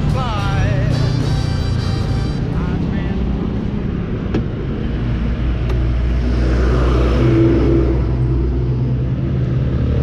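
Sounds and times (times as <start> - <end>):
road noise: 0.0 - 10.0.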